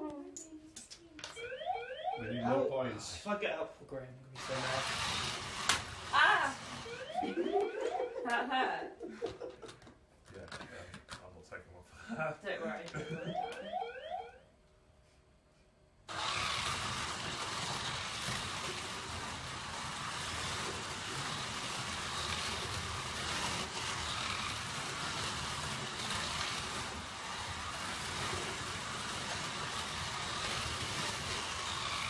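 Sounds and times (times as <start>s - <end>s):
slot cars whirring: 1.3s - 2.9s, 4.4s - 8.7s, 12.9s - 14.4s, 16.1s - 32.0s.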